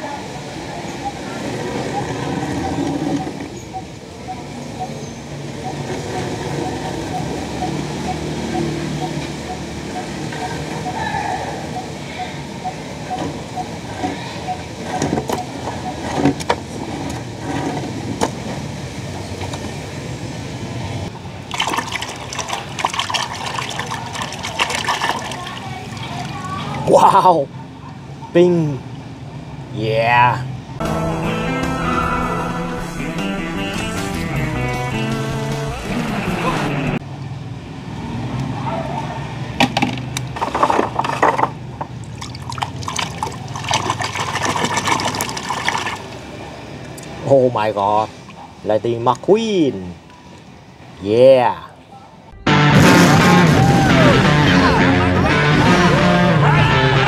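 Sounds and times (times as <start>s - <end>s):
low wash of water: 18.0s - 26.9s
water sloshing and splashing: 21.4s - 26.9s, 40.3s - 47.0s.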